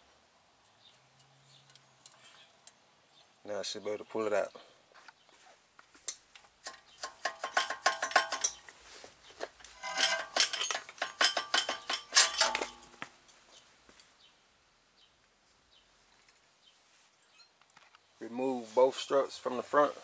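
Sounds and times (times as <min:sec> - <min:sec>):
metallic clinks and clanks: 0:06.1 - 0:08.7, 0:09.4 - 0:13.6.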